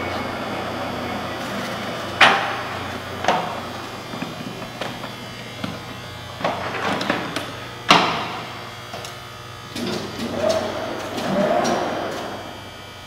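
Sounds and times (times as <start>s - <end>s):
boring mill electric hum: 0.0s - 13.0s
machine rattling: 9.7s - 12.7s.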